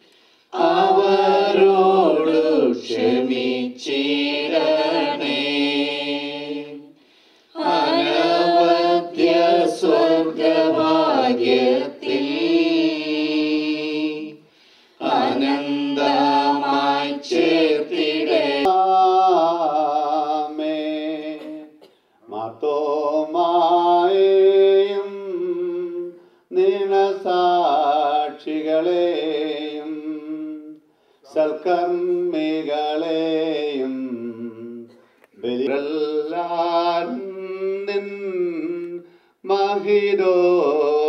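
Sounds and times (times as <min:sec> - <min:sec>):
choir singing a hymn: 0:00.5 - 0:21.6, 0:31.4 - 0:38.7.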